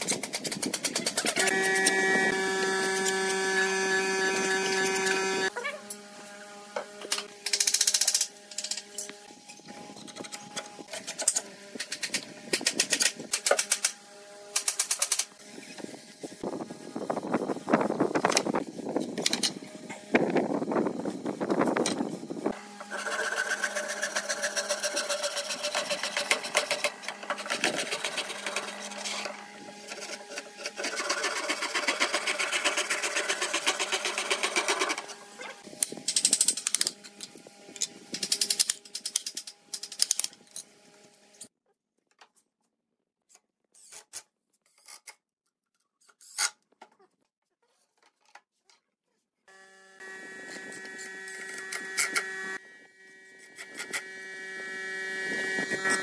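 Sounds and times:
hand saw cutting wood: 0.0 - 16.0, 22.5 - 40.2, 50.0 - 52.6, 53.2 - 56.0.

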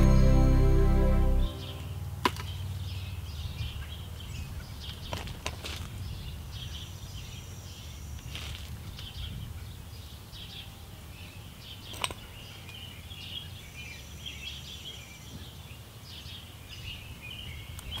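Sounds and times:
low steady rumble: 0.0 - 2.2.

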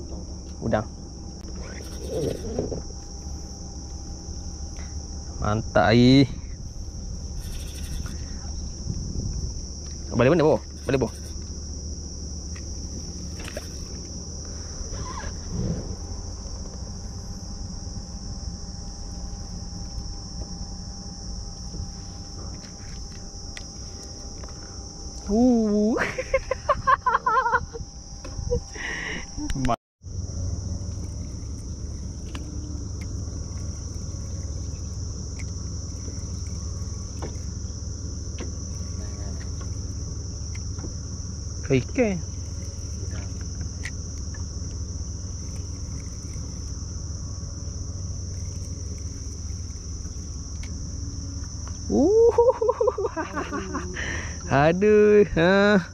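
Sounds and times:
low rumble: 0.0 - 25.3
insect chorus drone: 0.0 - 55.9
low background rumble: 0.0 - 55.9.

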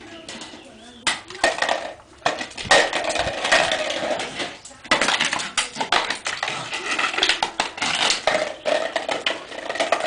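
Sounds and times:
flower pot scraping on concrete: 0.0 - 10.0.

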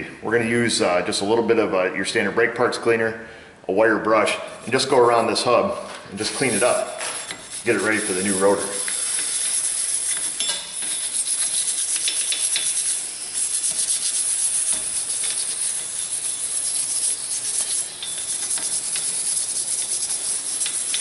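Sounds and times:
wire brush scrubbing metal: 6.2 - 21.0.

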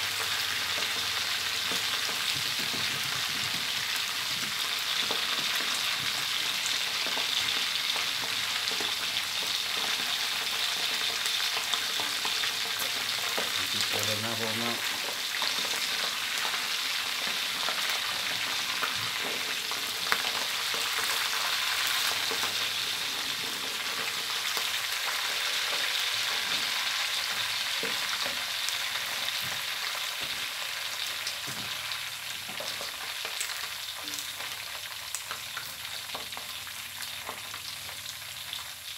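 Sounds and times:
fish deep-frying in hot oil: 0.0 - 38.9.

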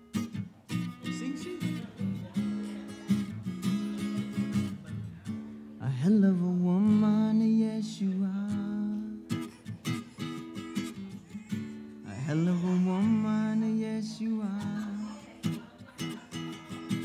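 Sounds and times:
acoustic guitar strumming: 0.0 - 17.0
man singing wordless note: 5.8 - 9.3, 12.0 - 15.2.

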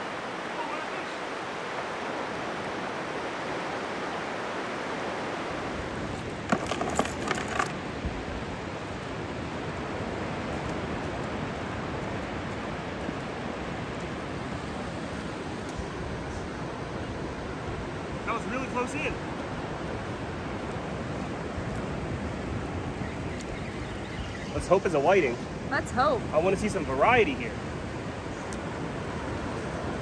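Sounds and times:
ocean surf breaking: 0.0 - 6.5.

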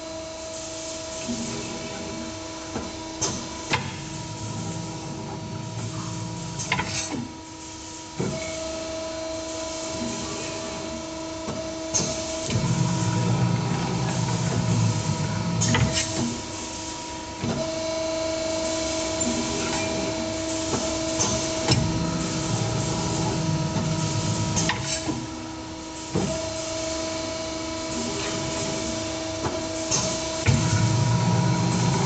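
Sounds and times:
machine motor hum: 17.3 - 32.0.

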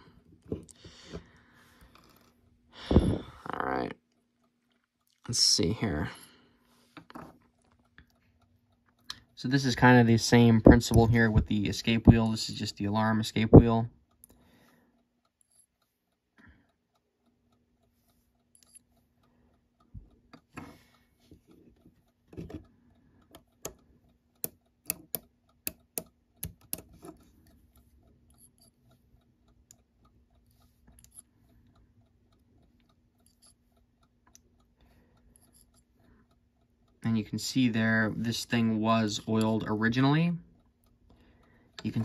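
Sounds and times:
clock ticking faintly: 7.8 - 42.0
sharp metallic clicks: 22.6 - 42.0.

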